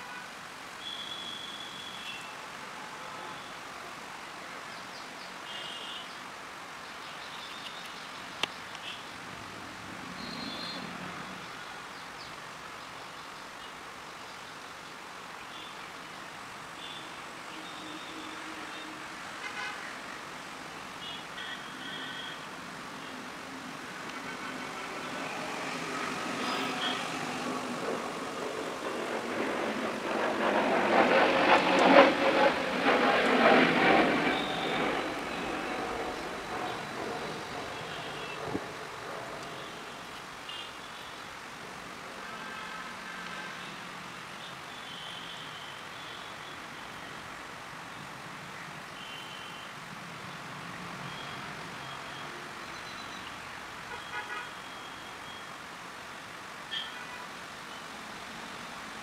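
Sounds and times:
vehicle horn toot: 0.0 - 2.4, 21.0 - 22.4, 53.9 - 55.1, 56.7 - 57.3
distant road traffic hum: 0.0 - 59.0
motor vehicle noise: 21.8 - 40.6.

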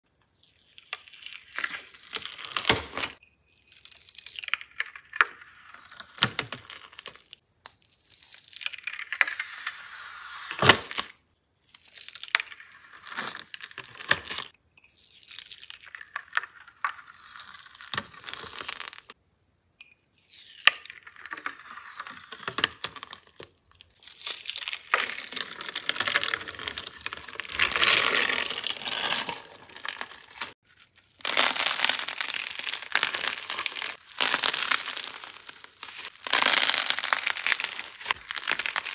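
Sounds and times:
plastic film tearing and crinkling: 1.2 - 3.2, 10.4 - 11.1, 22.0 - 38.9.

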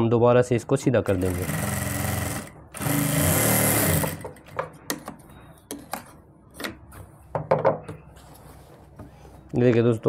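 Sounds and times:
electric sewing machine: 1.1 - 4.4.

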